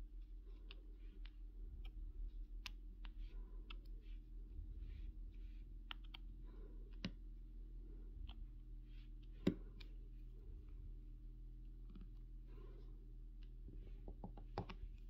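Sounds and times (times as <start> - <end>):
light clicks and taps: 0.2 - 5.0, 5.7 - 7.4, 8.2 - 10.8, 13.3 - 15.0.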